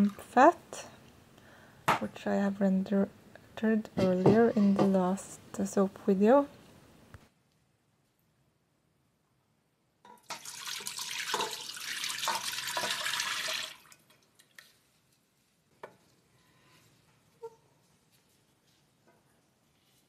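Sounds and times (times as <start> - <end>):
liquid fat pouring into pot: 10.2 - 14.8.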